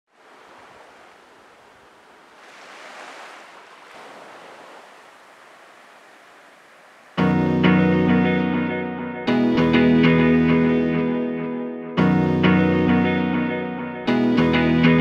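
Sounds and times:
surf rushing: 0.1 - 8.0.

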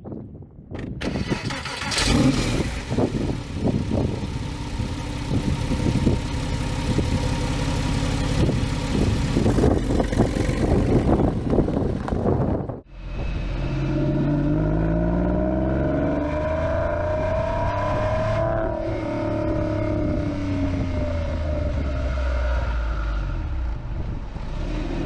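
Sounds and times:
car engine starting and idling: 0.8 - 16.8.

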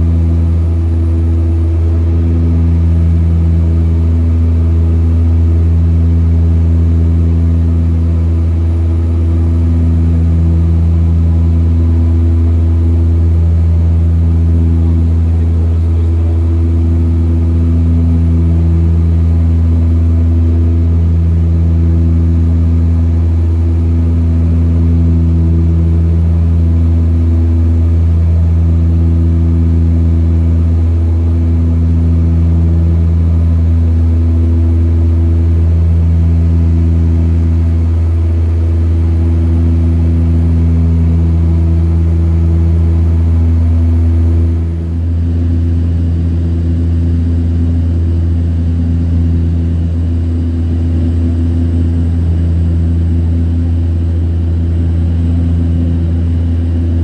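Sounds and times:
turboprop engines droning: 0.0 - 57.0.

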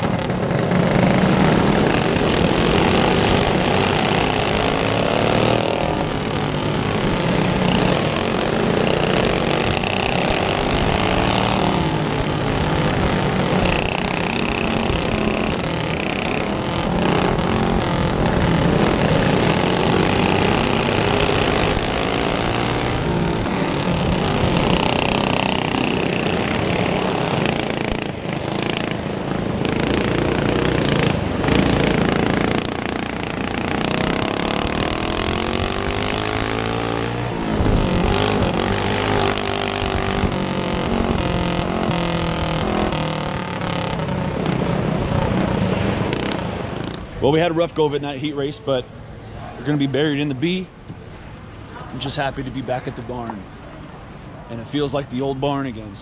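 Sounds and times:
go-kart engine revving: 0.0 - 56.0.

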